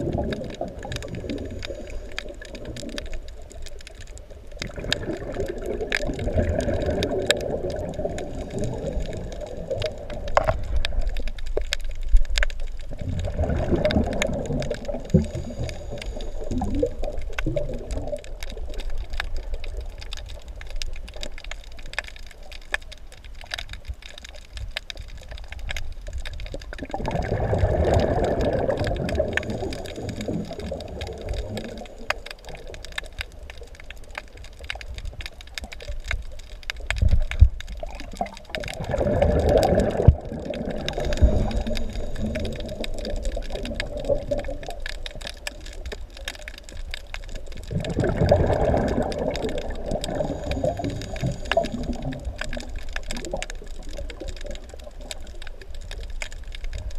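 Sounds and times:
underwater breath bubbling: 0.0s - 11.5s, 12.8s - 20.5s, 26.4s - 33.5s, 37.0s - 46.0s, 47.4s - 55.4s
faint clicking and crackling: 0.0s - 56.9s.

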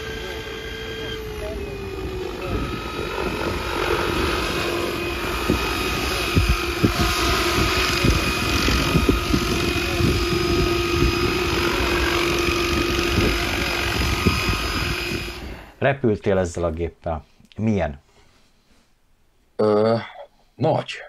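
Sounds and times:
rc helicopter motor whine: 0.0s - 15.8s
wind thumps on microphone: 2.4s - 15.7s.

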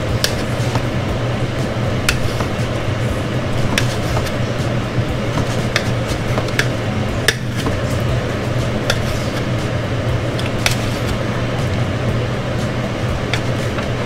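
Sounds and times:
steady low hum: 0.0s - 14.0s
knife slicing meat: 2.0s - 2.7s, 3.6s - 4.4s, 5.3s - 8.0s, 8.8s - 9.6s, 10.4s - 11.2s.

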